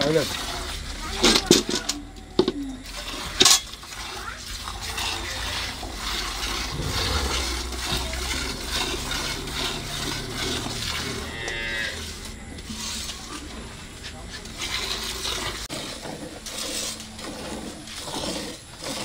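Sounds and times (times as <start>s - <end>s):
cow mooing: 6.7s - 8.2s, 11.0s - 12.2s.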